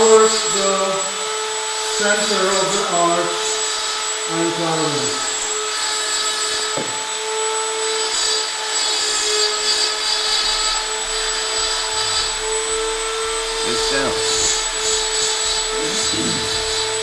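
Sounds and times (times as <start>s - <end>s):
rotary tool grinding antler: 0.0s - 17.0s.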